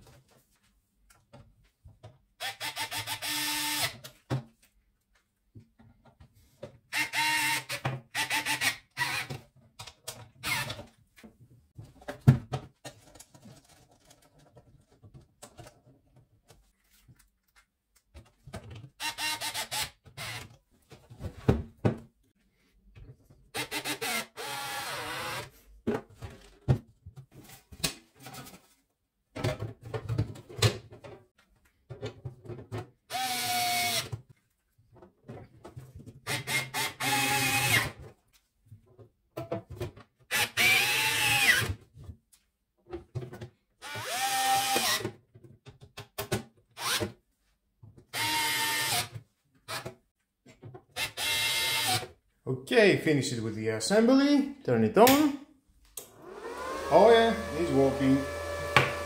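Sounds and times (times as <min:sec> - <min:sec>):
electric screwdriver motor whining: 0:43.8 - 0:45.0, 0:56.2 - 0:59.0.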